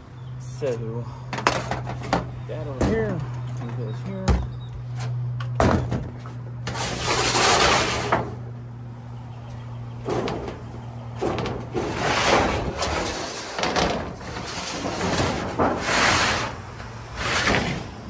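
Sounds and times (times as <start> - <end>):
knocks on metal roof: 5.6 - 6.2
metal roofing sheet scraping: 5.8 - 8.4, 10.0 - 18.0.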